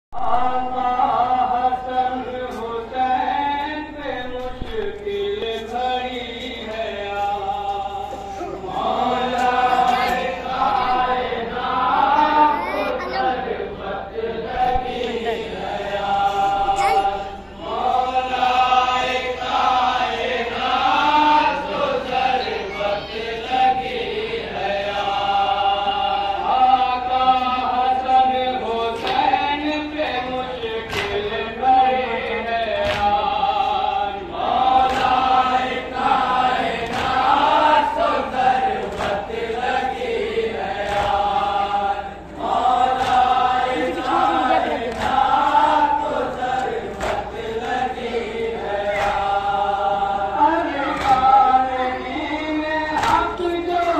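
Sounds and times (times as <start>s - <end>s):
men chanting in unison: 0.1s - 53.9s
hands slapping chests: 32.8s - 33.2s, 40.8s - 41.2s, 46.9s - 47.3s, 51.0s - 51.3s.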